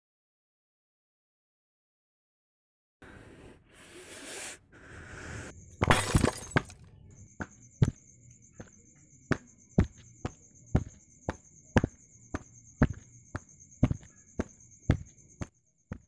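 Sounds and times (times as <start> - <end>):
insects chirring: 5.5 - 16.0.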